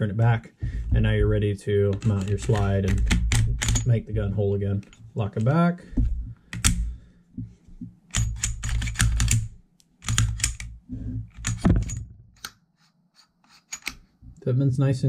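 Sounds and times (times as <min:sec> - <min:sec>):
pistol parts clicking and rattling: 0:01.9 - 0:04.0, 0:06.5 - 0:06.9, 0:08.1 - 0:12.5, 0:13.7 - 0:14.1.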